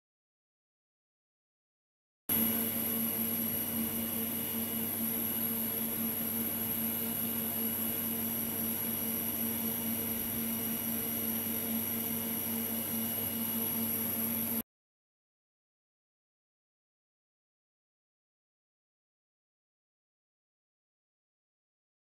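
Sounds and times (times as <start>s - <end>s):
machine hum: 2.3s - 14.6s
thin high whine: 2.3s - 14.6s.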